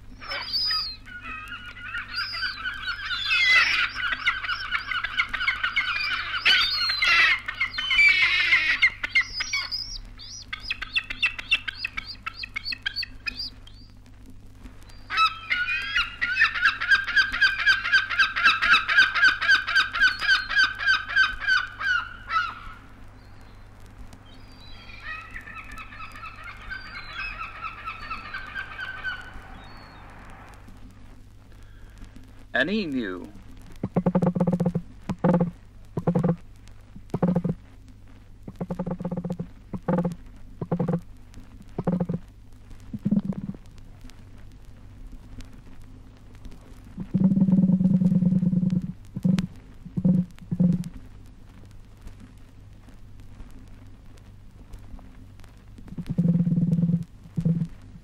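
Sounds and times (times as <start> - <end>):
gull calling: 0.2 - 13.6, 15.0 - 22.9, 24.3 - 30.8, 32.6 - 36.4, 37.1 - 37.6, 38.5 - 41.0, 41.8 - 42.2, 43.0 - 43.6.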